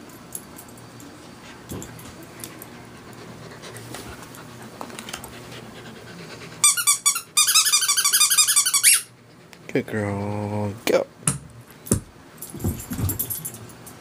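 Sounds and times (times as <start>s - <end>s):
puppy squeaky whines: 6.6s - 9.1s.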